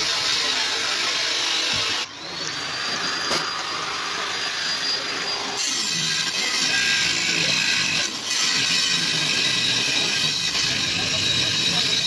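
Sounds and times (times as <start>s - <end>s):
angle grinder motor whine: 0.1s - 12.0s
disc grinding on steel: 2.4s - 12.0s.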